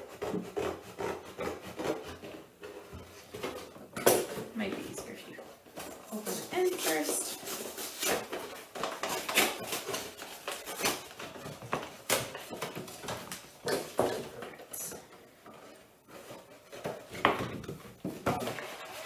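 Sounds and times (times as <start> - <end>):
scissors cutting cardboard: 0.0 - 2.8, 5.9 - 15.0.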